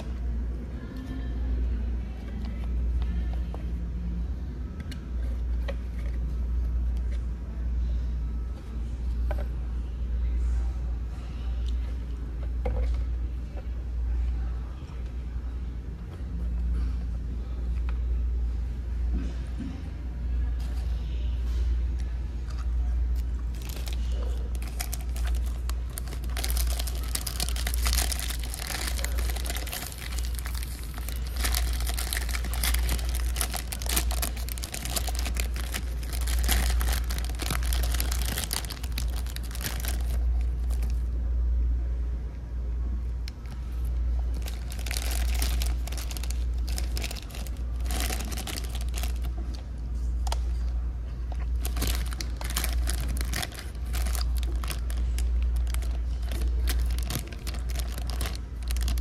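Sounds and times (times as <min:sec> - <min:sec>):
steady low hum: 0:00.0 - 0:59.0
plastic packet crinkling: 0:23.5 - 0:41.1, 0:43.4 - 0:49.6, 0:51.5 - 0:59.0.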